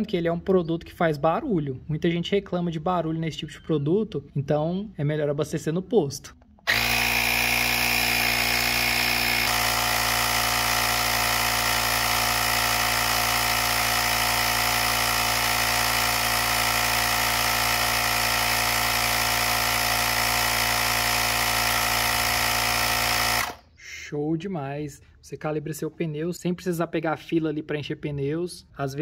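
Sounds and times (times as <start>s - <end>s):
air compressor droning: 6.7s - 23.6s.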